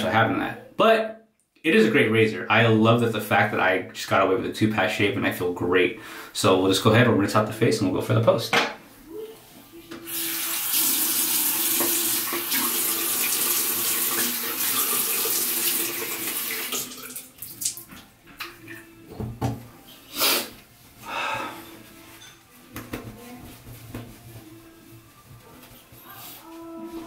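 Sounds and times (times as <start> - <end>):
sink faucet running: 10.0 - 18.0.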